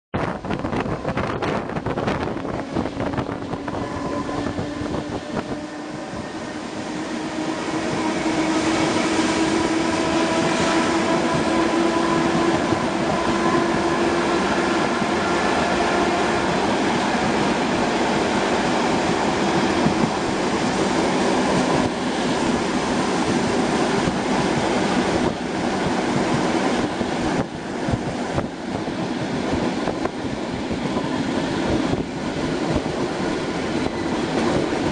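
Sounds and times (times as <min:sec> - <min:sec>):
train wheels rumbling on rails: 0:00.1 - 0:34.9
train motor whine: 0:00.2 - 0:25.4.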